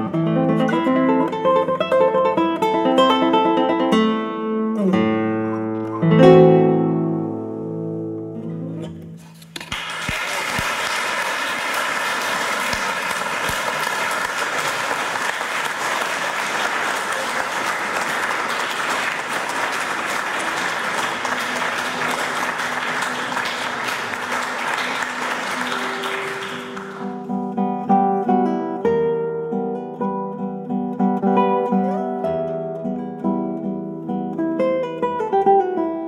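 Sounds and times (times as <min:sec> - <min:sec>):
solo classical guitar: 0:00.0 - 0:09.8, 0:20.2 - 0:36.0
audience applauding: 0:09.6 - 0:27.4.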